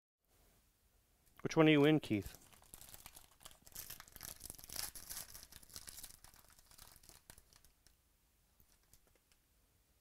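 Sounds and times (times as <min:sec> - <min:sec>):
foil wrapper tearing and crinkling: 0:02.3 - 0:08.0.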